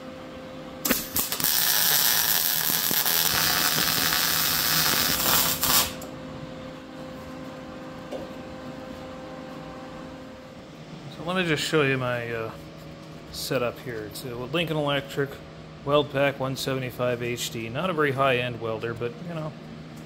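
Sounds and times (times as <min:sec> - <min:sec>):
steady hum: 0:00.0 - 0:20.0
welder arc crackling: 0:00.8 - 0:06.1.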